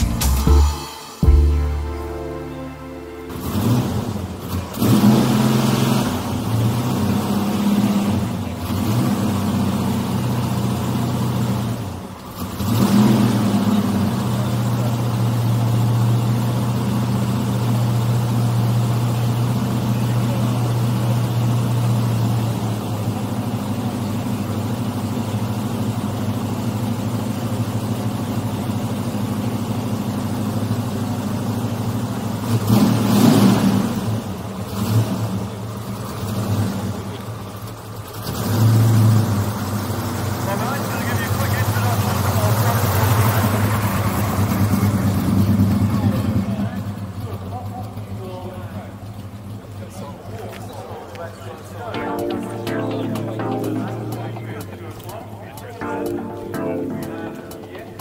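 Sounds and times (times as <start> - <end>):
car engine humming: 0.0 - 30.2.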